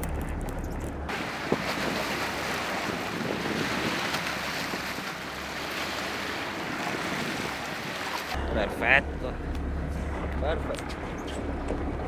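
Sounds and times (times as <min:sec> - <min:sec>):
wind buffeting microphone: 0:00.0 - 0:08.4
water splashing against boat: 0:01.1 - 0:08.4.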